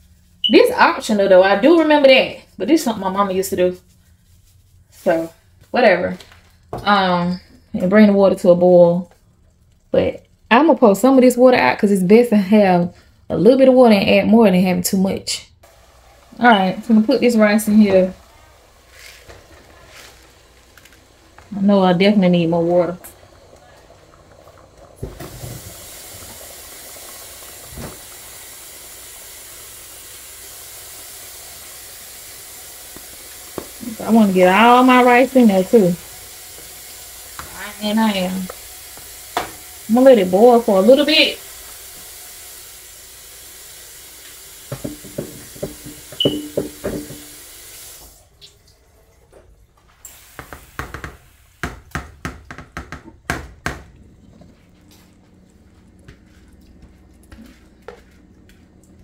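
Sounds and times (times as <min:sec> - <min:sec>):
pot of water boiling: 0:15.6 - 0:59.0
colander tapping against pot: 0:44.7 - 0:47.3.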